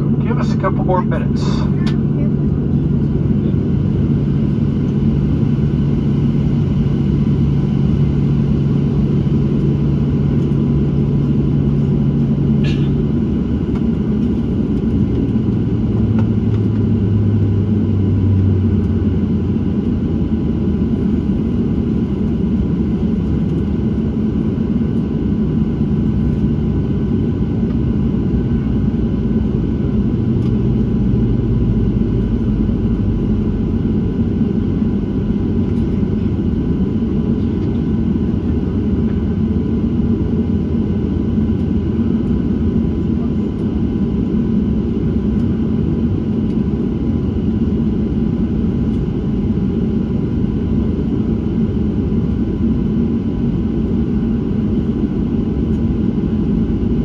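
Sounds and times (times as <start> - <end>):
low hum: 0.0 - 25.0
airplane cabin engine rumble: 0.0 - 57.0.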